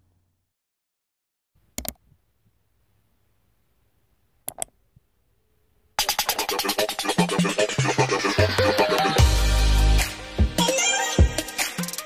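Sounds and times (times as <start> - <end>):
computer mouse clicks: 1.8 - 2.0, 4.4 - 4.8.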